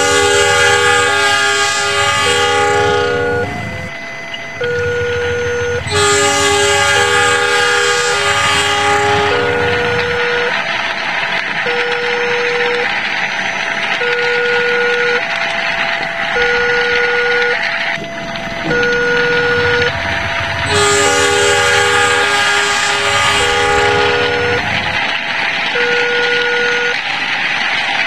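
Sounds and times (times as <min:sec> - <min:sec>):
level-crossing alarm two-tone: 0:00.0 - 0:10.7, 0:11.6 - 0:25.0, 0:25.7 - 0:27.0
multi-note train horn: 0:00.0 - 0:10.7, 0:11.7 - 0:12.9, 0:18.7 - 0:25.1, 0:25.7 - 0:27.0
steady rushing noise: 0:17.7 - 0:25.7.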